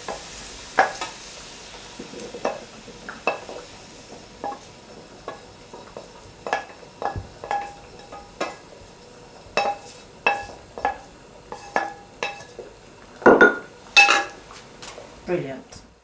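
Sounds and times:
faint sizzle: 0.0s - 16.0s
wooden spatula knocking metal pan: 6.0s - 8.6s, 9.6s - 12.5s.

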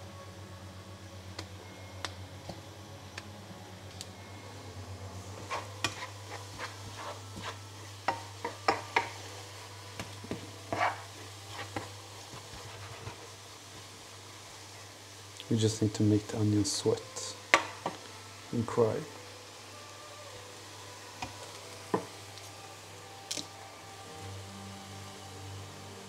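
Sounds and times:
onions sizzling in a pan: 0.0s - 26.0s
steady low hum: 0.0s - 26.0s
utensil scraping a pan: 5.4s - 9.2s, 10.0s - 13.4s.

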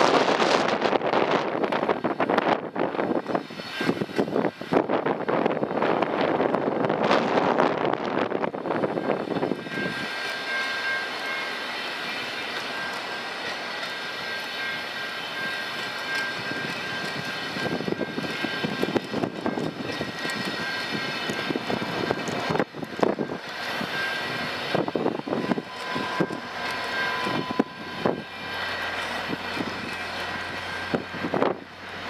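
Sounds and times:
train rushing roar: 0.0s - 32.0s
train wheels clattering over rails: 5.5s - 32.0s
faint high whine: 7.2s - 32.0s.

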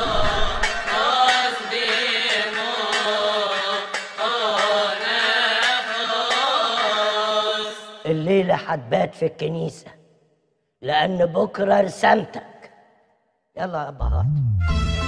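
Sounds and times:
slow melismatic liturgical chant: 0.0s - 8.6s.

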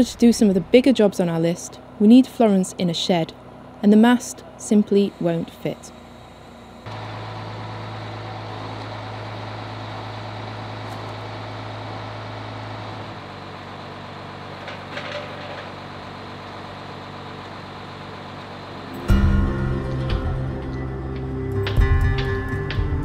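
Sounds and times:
heavy machine engine running: 0.0s - 23.0s
metal clanks: 14.6s - 15.8s.

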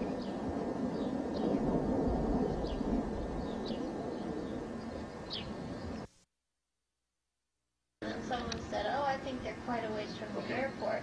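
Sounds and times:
low rumble: 0.0s - 6.1s
bird chirps: 3.4s - 6.1s.

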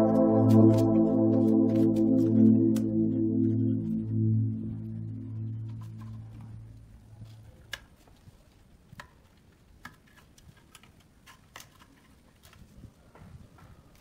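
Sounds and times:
background music: 0.0s - 7.2s.

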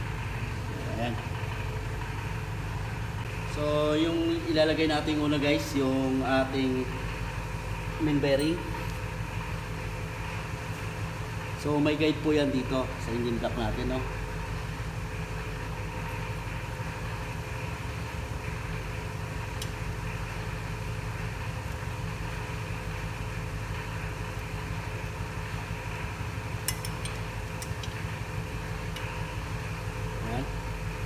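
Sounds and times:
machine humming: 0.0s - 31.0s
light metal clicks: 26.6s - 28.0s.

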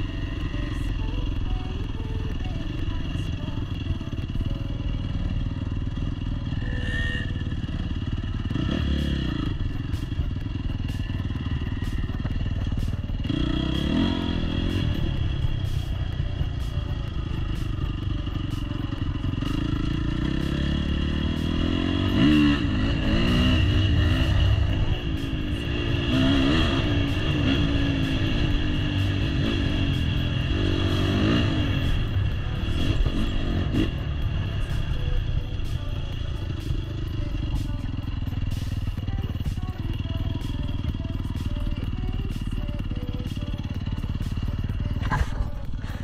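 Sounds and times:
dirt bike engine revving: 5.0s - 46.0s.

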